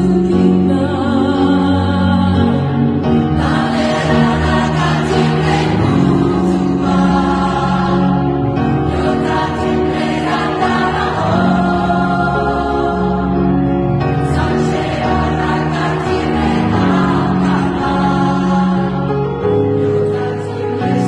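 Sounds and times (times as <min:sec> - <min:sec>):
choir singing sustained notes: 0:00.0 - 0:21.0.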